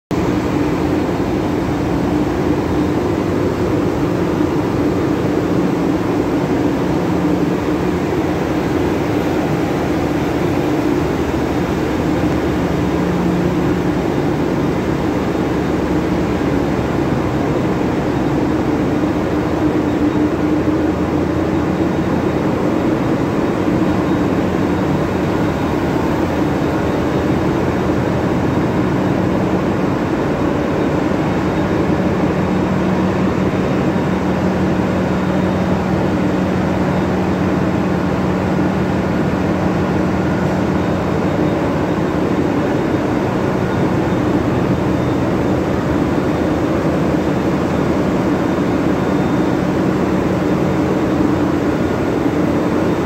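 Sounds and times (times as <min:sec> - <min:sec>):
constant low hum: 0:00.1 - 0:53.0
engine room machinery din: 0:00.1 - 0:53.0.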